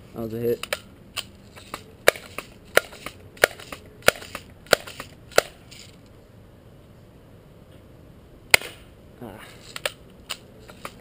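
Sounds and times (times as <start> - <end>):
bb gun clacks: 0.6 - 5.6, 9.6 - 11.0.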